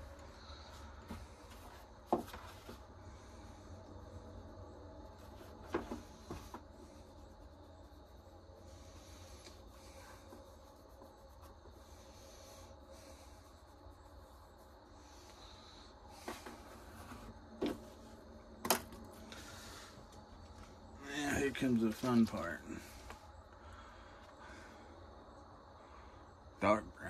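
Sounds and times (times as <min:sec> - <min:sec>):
rubbing leather sheath: 0:05.1 - 0:17.9.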